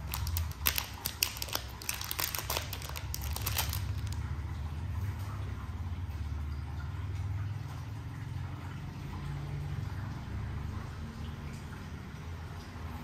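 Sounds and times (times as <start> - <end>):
packing wrap crinkling: 0.0 - 4.2.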